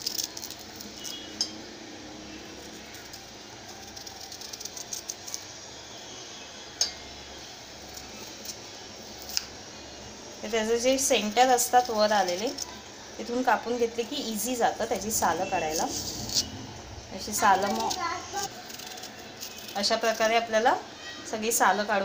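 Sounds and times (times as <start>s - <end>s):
knife scraping banana skin: 0.0s - 1.4s, 2.5s - 5.5s, 7.8s - 9.5s, 11.1s - 12.8s, 14.4s - 20.6s.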